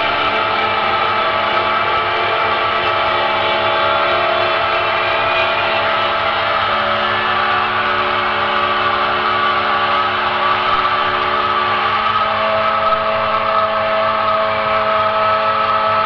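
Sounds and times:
dark ambient drone music: 0.0s - 16.0s.

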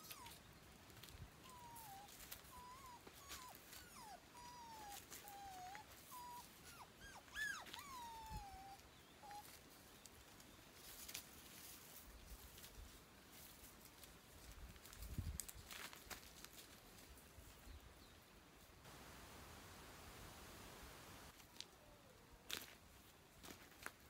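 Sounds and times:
dog whining: 0.0s - 0.4s, 1.4s - 9.5s.

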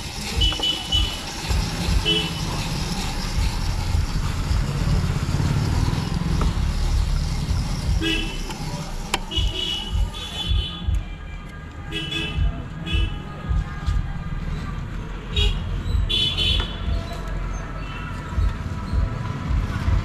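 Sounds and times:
street traffic rumbling: 0.0s - 20.0s
vehicle horn toots: 9.3s - 10.9s, 15.4s - 16.8s.

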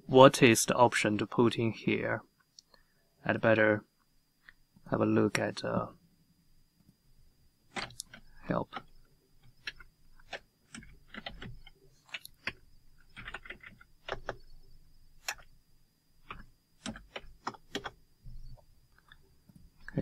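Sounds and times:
faint high-pitched whine: 0.0s - 20.0s
keyboard typing: 7.7s - 14.6s, 15.2s - 15.5s, 16.2s - 19.2s.

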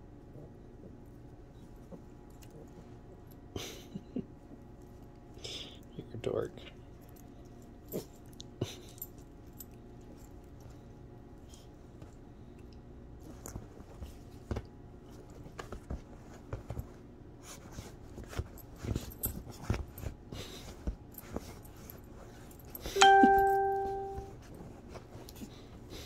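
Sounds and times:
dog paws scratching cushions: 13.2s - 22.8s, 24.4s - 26.0s
bell-like ding: 23.0s - 24.3s.

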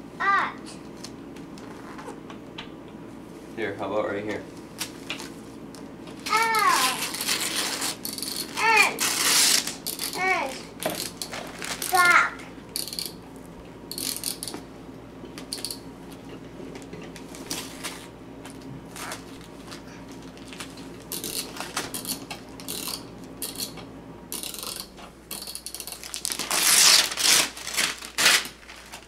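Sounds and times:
wrapping paper crinkling and tearing: 6.2s - 10.7s, 11.3s - 12.1s, 18.9s - 22.0s, 25.9s - 29.0s.

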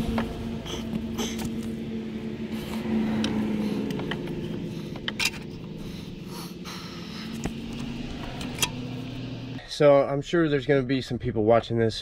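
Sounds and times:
low hum: 0.0s - 9.7s
metal clicks and scrapes: 3.2s - 5.7s.

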